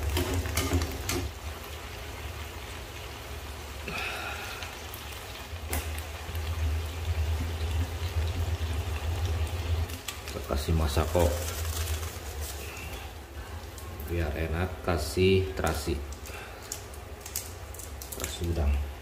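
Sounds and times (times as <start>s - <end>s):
vegetables sizzling in frying pan: 0.0s - 19.0s.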